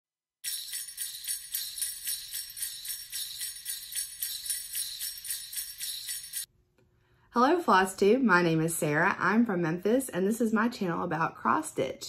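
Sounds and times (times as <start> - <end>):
sleigh bells jingling: 0.4 - 6.5.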